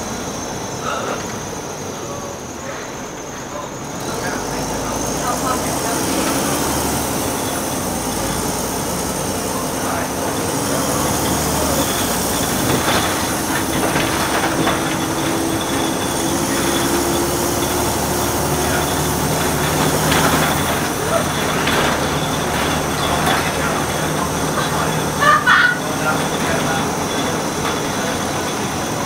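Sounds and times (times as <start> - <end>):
bus diesel engine running: 0.0 - 29.0
road noise: 0.0 - 29.0
bodywork rattling and knocking: 11.2 - 25.2.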